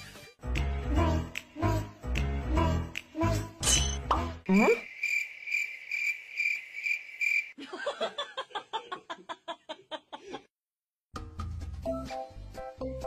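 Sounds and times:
cricket chirping: 4.5s - 7.6s.

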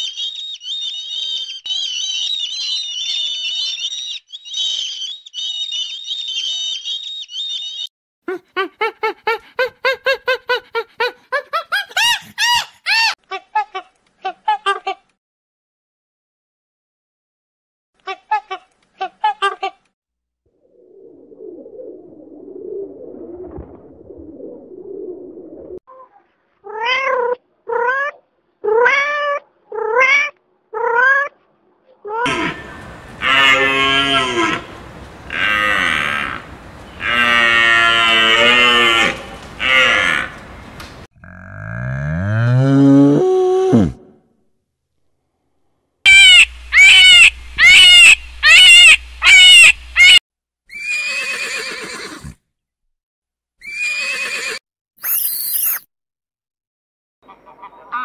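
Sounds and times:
horse whinnying: 50.7s - 52.4s, 53.6s - 55.8s.

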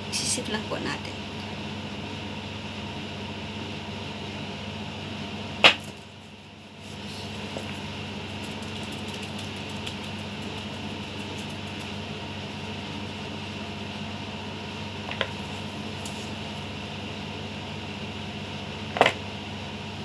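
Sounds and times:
steady machine hum: 0.0s - 20.0s
strainer shaking light ticking: 7.6s - 13.1s.

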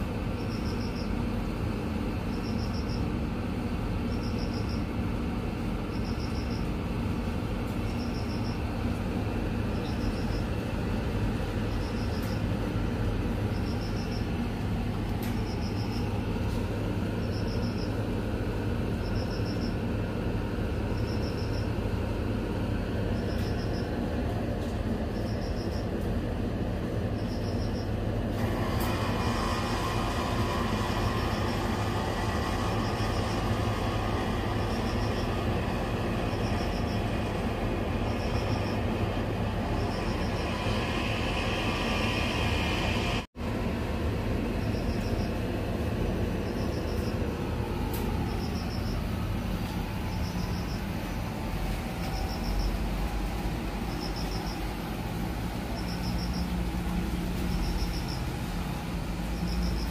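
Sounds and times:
steady rumbling: 0.0s - 59.9s
faint high chirp: 4.1s - 4.9s, 7.9s - 8.6s.

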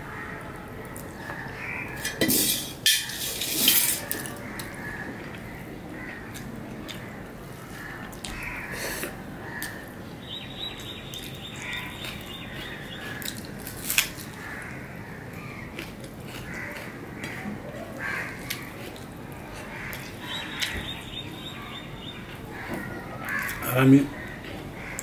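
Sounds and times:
birds calling: 4.4s - 15.8s, 16.4s - 25.0s
chewing and mouth sounds: 15.6s - 20.8s.

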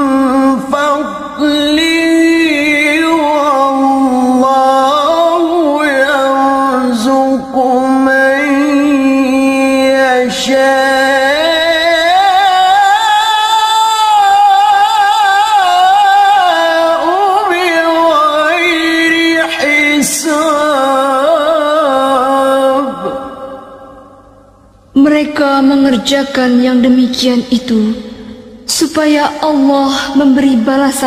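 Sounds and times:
man reciting melodically: 0.0s - 24.3s.

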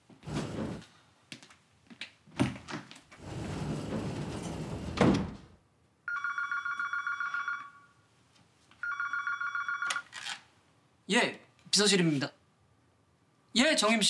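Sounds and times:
desk telephone ringing: 6.1s - 8.0s, 8.8s - 10.2s.

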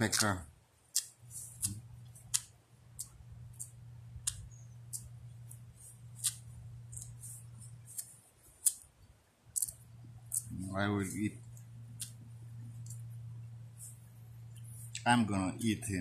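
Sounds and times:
feathers plucked with sharp ticks: 0.0s - 8.9s, 9.5s - 13.2s
steady low hum: 0.0s - 16.0s.

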